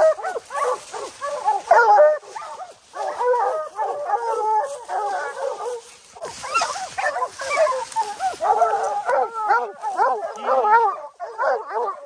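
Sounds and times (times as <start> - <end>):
pack of hounds baying and yelping: 0.0 - 12.0.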